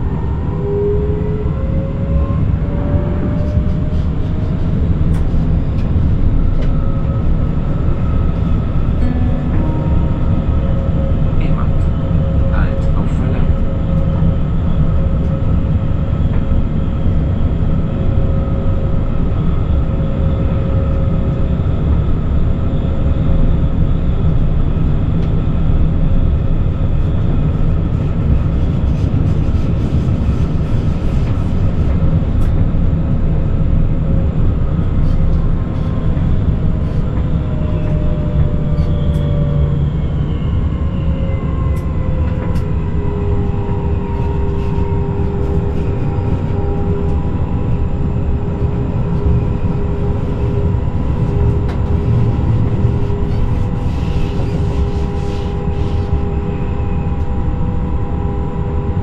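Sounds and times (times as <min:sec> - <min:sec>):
train wheels rumbling on rails: 0:00.0 - 0:58.2
traction motor whine: 0:33.3 - 0:59.0.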